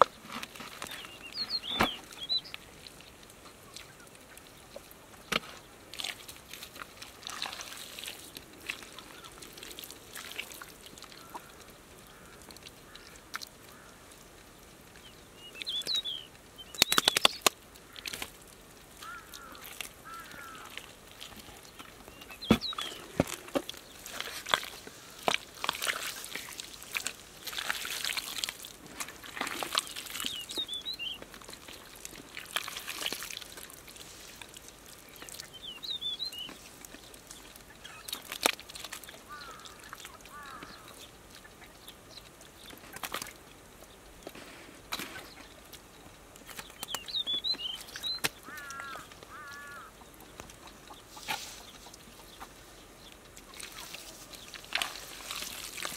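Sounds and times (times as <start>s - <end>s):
wet mud squelching: 0.0s - 14.0s, 15.0s - 55.9s
bird chirps: 0.8s - 2.6s, 15.0s - 17.5s, 22.1s - 23.2s, 29.8s - 31.2s, 35.2s - 36.6s, 46.6s - 49.9s
hands slapping mud: 16.8s - 18.3s, 21.8s - 30.5s, 53.6s - 55.9s.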